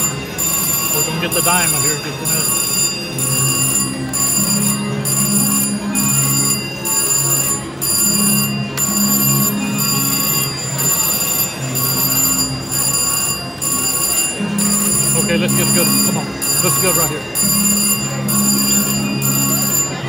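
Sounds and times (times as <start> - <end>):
slot machine ringing and chiming: 0.0 - 20.0.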